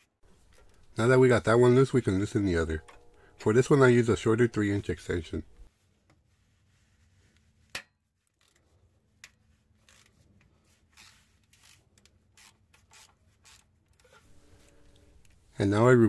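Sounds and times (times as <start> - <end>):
ratchet clicking: 11.0 - 13.7
metal scrapes: 14.0 - 15.6.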